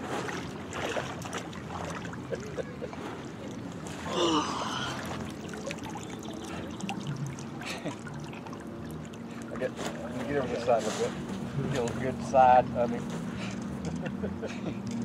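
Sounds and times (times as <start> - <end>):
water splashing and trickling: 0.0 - 13.8
water dripping: 5.0 - 9.6.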